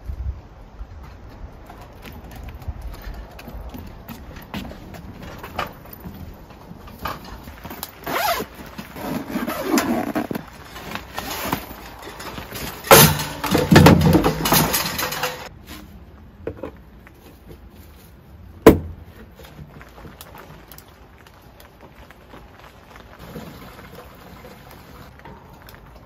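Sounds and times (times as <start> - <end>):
tent fabric rustling: 4.6 - 13.8
zipper pulled open: 8.0 - 10.5.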